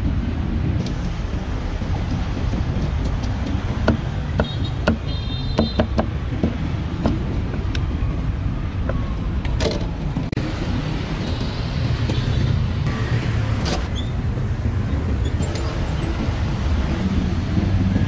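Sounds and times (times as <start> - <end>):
street traffic rumble: 0.0 - 18.0
sharp knocks: 2.6 - 7.3.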